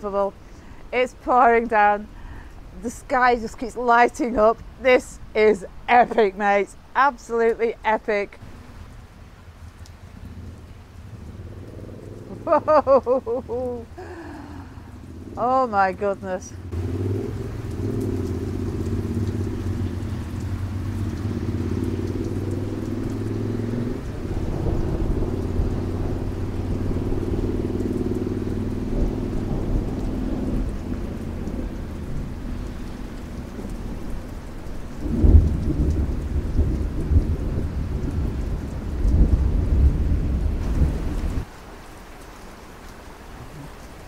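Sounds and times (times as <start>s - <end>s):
heavy rain: 0.0s - 44.0s
thunder rumbling: 10.0s - 41.5s
thunder clap: 23.8s - 27.5s, 35.0s - 41.4s.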